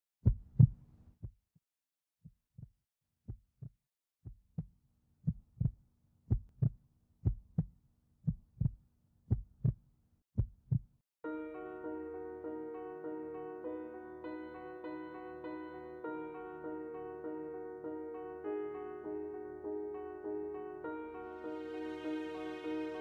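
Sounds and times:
heartbeat thumps: 0:00.2 - 0:01.4, 0:03.3 - 0:09.8, 0:10.4 - 0:10.9.

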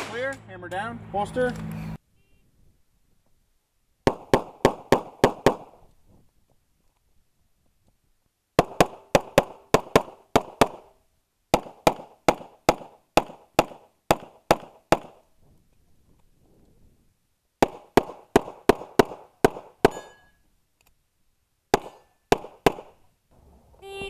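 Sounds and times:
rapid pistol shots: 0:00.0 - 0:00.4, 0:04.0 - 0:05.7, 0:08.6 - 0:10.9, 0:11.5 - 0:15.2, 0:17.6 - 0:20.2, 0:21.7 - 0:23.0.

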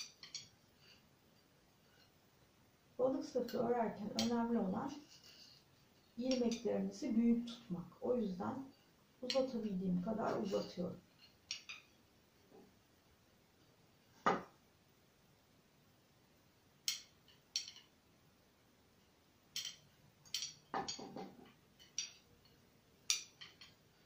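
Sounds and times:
knitting needles clicking: 0:00.0 - 0:00.6, 0:03.4 - 0:04.6, 0:06.1 - 0:06.8, 0:11.2 - 0:11.9, 0:16.8 - 0:17.9, 0:19.5 - 0:22.2, 0:23.0 - 0:23.8.

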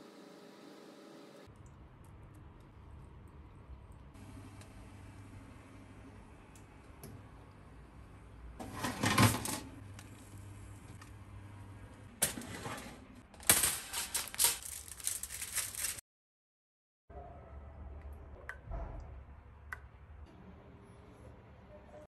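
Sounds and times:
oven rack and tray clattering: 0:08.6 - 0:09.7, 0:12.2 - 0:14.9.

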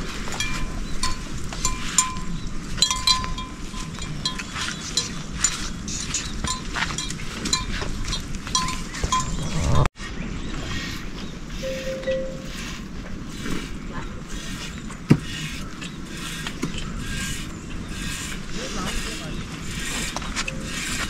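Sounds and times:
livestock bells clinking: 0:00.3 - 0:09.8, 0:11.6 - 0:12.7.

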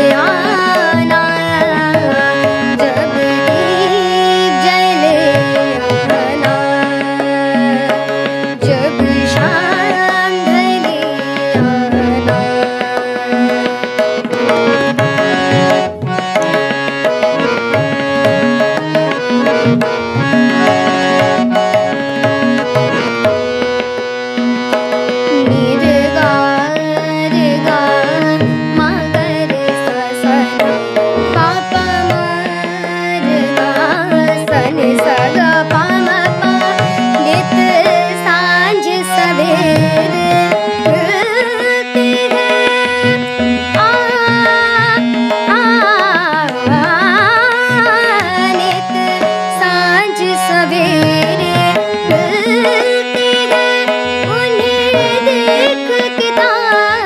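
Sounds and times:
girl singing: 0:00.0 - 0:08.0, 0:08.6 - 0:13.7, 0:25.3 - 0:30.6, 0:31.4 - 0:57.0
harmonium: 0:00.0 - 0:57.0
tabla: 0:00.0 - 0:57.0.

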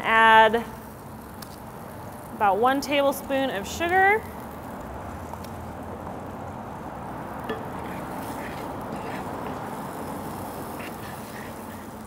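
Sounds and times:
fruit sizzling in skillet: 0:00.2 - 0:12.0.

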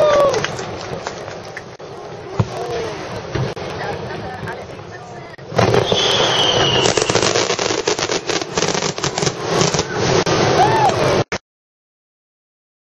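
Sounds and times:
fireworks crackling bangs: 0:00.0 - 0:11.4
high falling whistle: 0:05.7 - 0:07.4.

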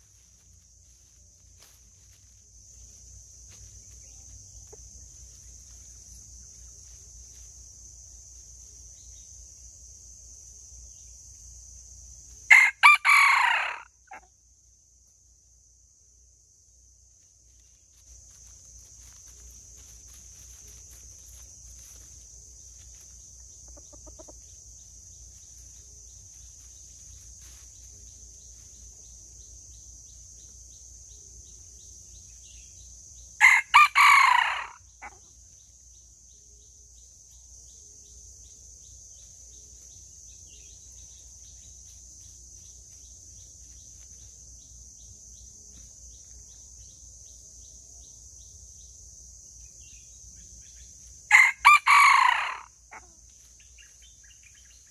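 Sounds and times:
high insect drone: 0:00.0 - 0:54.9
rooster crowing: 0:12.5 - 0:14.2, 0:33.4 - 0:35.2, 0:51.3 - 0:53.0.

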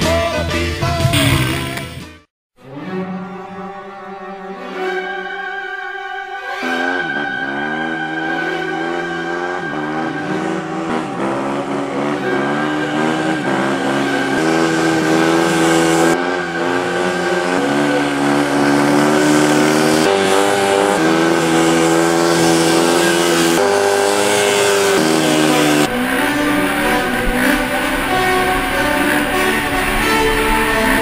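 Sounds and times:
dirt bike engine revving: 0:06.5 - 0:31.0.

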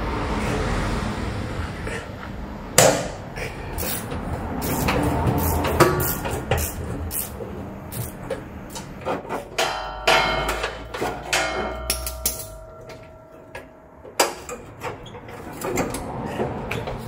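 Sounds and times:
tools and bolts clinking: 0:08.0 - 0:17.0
ringing metal clang: 0:09.5 - 0:15.4.

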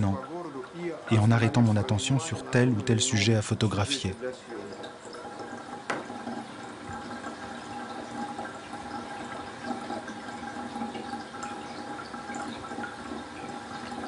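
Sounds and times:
faint steady hum: 0:00.0 - 0:14.0
water running: 0:00.0 - 0:14.0.

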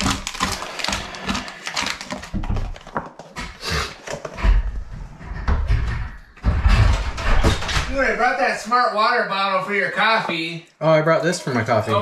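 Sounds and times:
snack wrappers rustling: 0:00.0 - 0:04.4.

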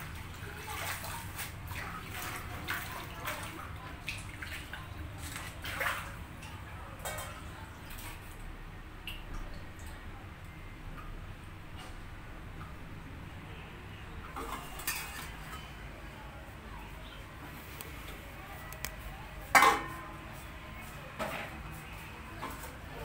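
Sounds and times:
water splashing and dripping: 0:00.0 - 0:10.0.

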